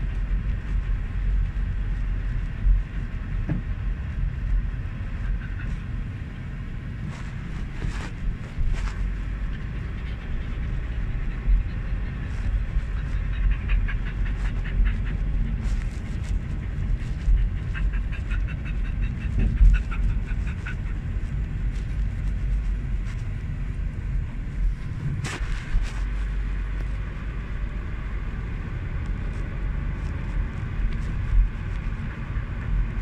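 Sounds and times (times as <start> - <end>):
car rumble inside cabin: 0.0 - 33.0
dog panting quickly: 4.7 - 6.4, 7.0 - 23.4.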